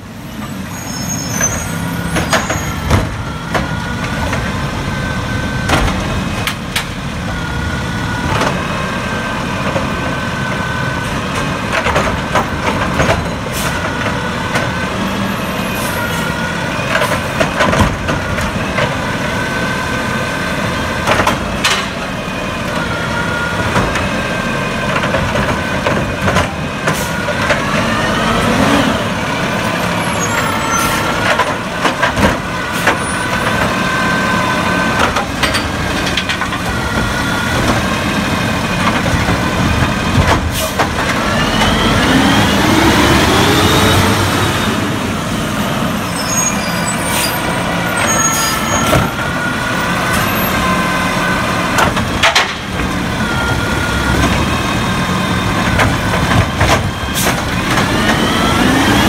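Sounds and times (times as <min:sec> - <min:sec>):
garbage truck engine: 0:00.0 - 0:59.0
carts knocking and banging: 0:11.1 - 0:14.9, 0:16.8 - 0:19.3, 0:20.8 - 0:22.9, 0:23.5 - 0:44.2, 0:46.9 - 0:59.0.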